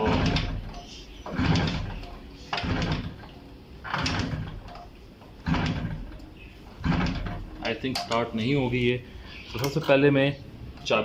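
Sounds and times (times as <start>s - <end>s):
engine turning over: 0.0s - 7.9s.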